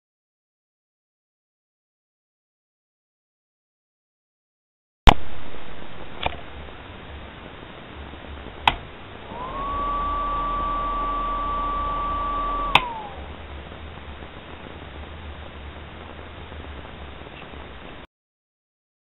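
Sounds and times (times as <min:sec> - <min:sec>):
extractor fan motor whining: 0:06.2 - 0:17.8
switch click: 0:08.6 - 0:08.8, 0:12.6 - 0:13.0.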